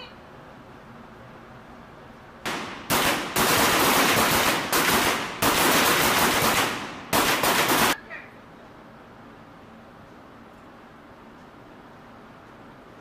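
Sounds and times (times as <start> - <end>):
pistol shots reverberating indoors: 2.5 - 8.0.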